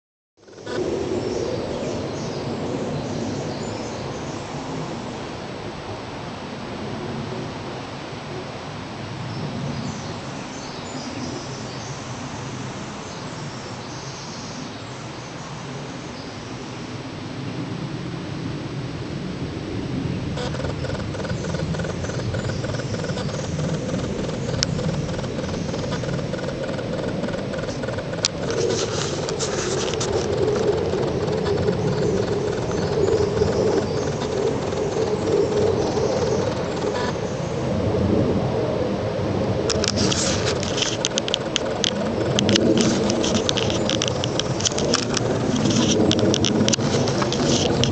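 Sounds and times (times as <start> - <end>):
distant jet aircraft roar: 0.4 - 47.9
birds chirping: 20.3 - 37.7, 39.7 - 47.9.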